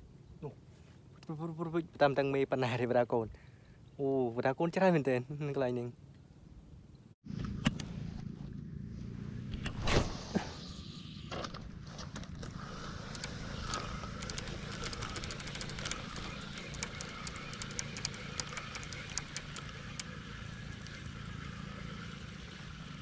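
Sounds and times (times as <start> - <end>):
small engine running: 7.3 - 9.7, 10.8 - 23.0
faint sharp clicks: 13.1 - 21.2.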